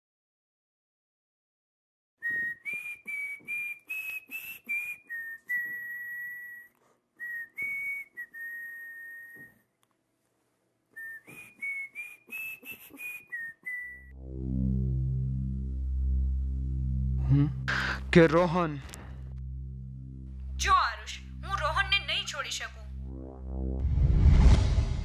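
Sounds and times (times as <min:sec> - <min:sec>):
person whistling a tune: 0:02.2 - 0:09.6, 0:11.0 - 0:14.1.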